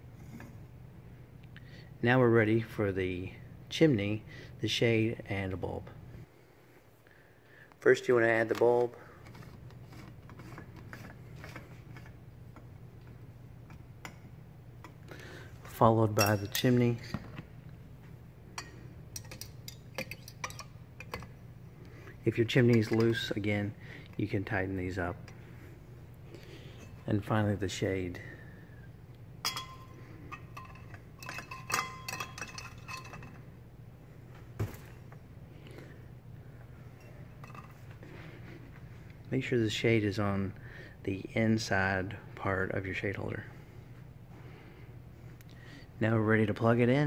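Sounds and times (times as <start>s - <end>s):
steady low hum: 0.0s - 47.0s
glass clinking on metal: 16.1s - 17.1s, 29.4s - 33.4s.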